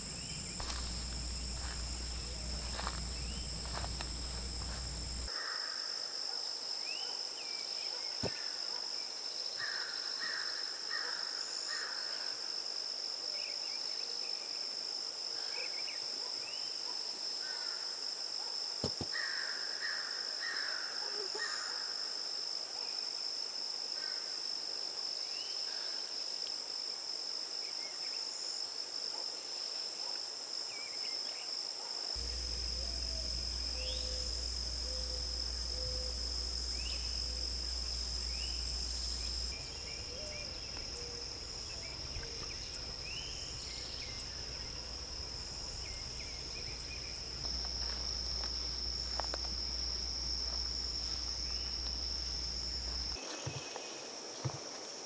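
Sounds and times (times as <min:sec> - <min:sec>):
insects trilling: 0:00.0 - 0:14.6, 0:29.5 - 0:55.0.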